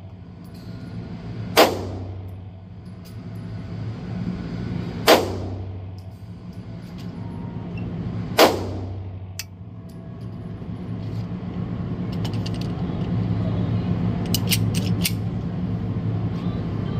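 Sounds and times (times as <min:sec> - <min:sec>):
steady low hum: 0:00.0 - 0:16.9
pistol shot with echo: 0:05.1 - 0:05.6, 0:08.4 - 0:09.0
metallic clicks and clacks: 0:14.2 - 0:15.2.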